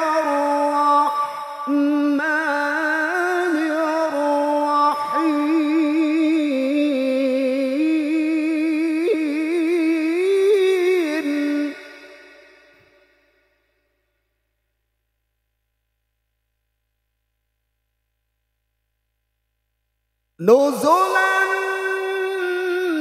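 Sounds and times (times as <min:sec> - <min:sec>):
man chanting melodically into microphone: 0:00.0 - 0:11.7, 0:20.4 - 0:23.0
echo of voice: 0:00.0 - 0:13.6, 0:20.4 - 0:23.0.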